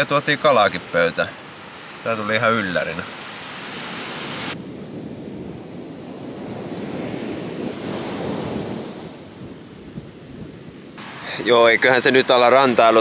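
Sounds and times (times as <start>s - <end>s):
surf washing on a beach: 0.0s - 13.0s
wind buffeting microphone: 3.2s - 13.0s
steady hiss: 10.9s - 13.0s.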